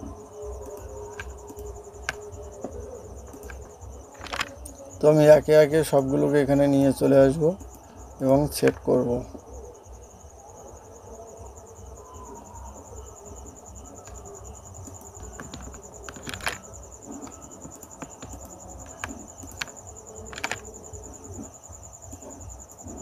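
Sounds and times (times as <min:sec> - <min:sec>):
pulsing insect trill: 0:00.0 - 0:23.0
computer mouse and keyboard clicks: 0:00.6 - 0:02.3, 0:03.2 - 0:04.8, 0:14.8 - 0:21.5.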